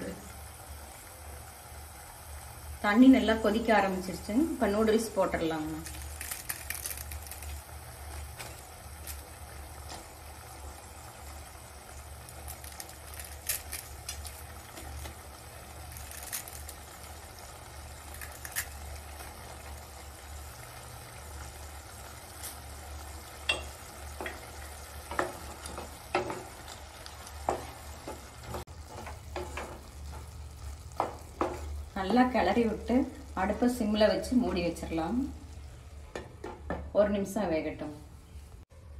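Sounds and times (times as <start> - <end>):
broth boiling in a pot: 0.0 - 38.9
dry noodles crumbling and crackling: 5.8 - 9.4, 12.1 - 20.0.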